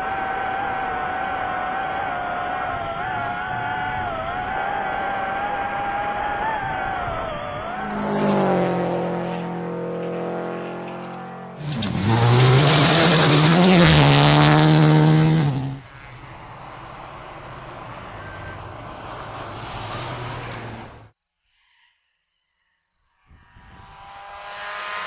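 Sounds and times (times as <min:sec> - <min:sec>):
rally car engine at full throttle: 0:00.0 - 0:21.1
distant engine hum: 0:06.4 - 0:21.1
loud rushing noise: 0:23.8 - 0:25.0.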